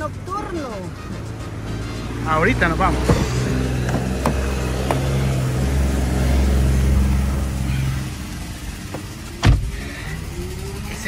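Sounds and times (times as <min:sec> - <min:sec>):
car engine running: 0:00.0 - 0:11.0
sharp thump: 0:08.9 - 0:09.7.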